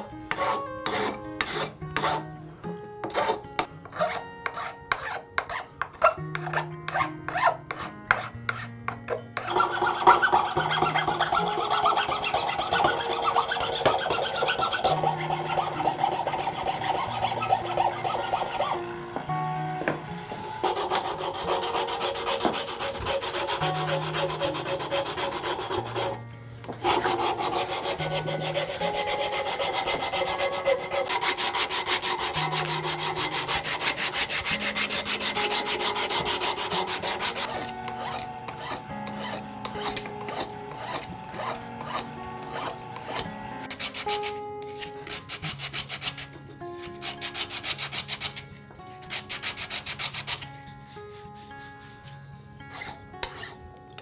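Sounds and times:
sandpaper rubbing on wood: 0:00.0 - 0:02.2, 0:09.4 - 0:18.8, 0:20.6 - 0:26.2, 0:26.8 - 0:48.4, 0:49.0 - 0:53.5
soft background music: 0:00.0 - 0:54.0.

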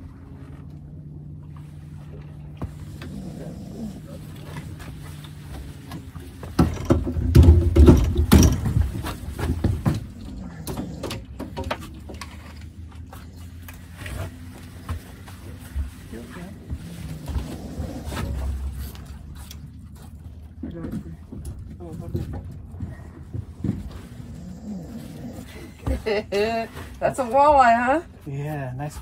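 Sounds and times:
boat motor hum: 0:00.0 - 0:29.0
thumps and clatter on deck: 0:04.4 - 0:12.6, 0:20.6 - 0:24.4.

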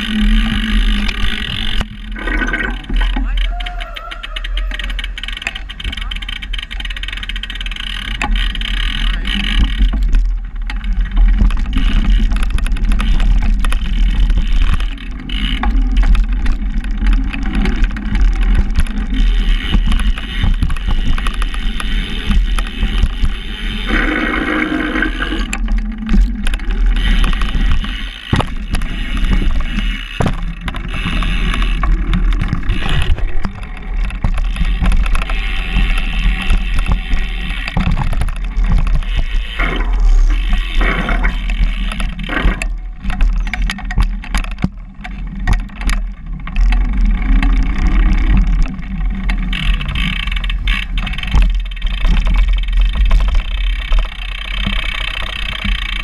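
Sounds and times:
bike rattling over bumps: 0:00.0 - 0:56.0
bike tyre rumble: 0:00.0 - 0:56.0.

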